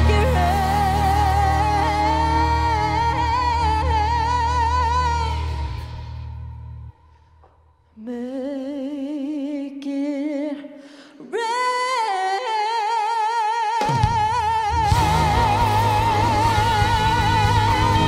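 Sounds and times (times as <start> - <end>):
band with bass and drums: 0.0 - 3.3, 13.8 - 18.0
woman singing with vibrato: 0.0 - 6.4, 8.0 - 18.0.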